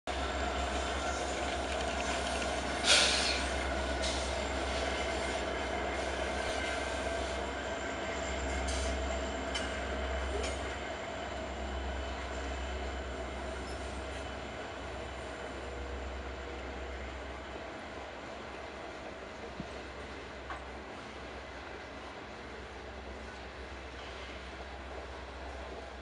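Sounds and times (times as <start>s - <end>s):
diesel locomotive engine rumble: 0.1s - 26.0s
steel wheels rolling on rails: 0.1s - 26.0s
sharp clack from rails: 8.6s - 10.8s.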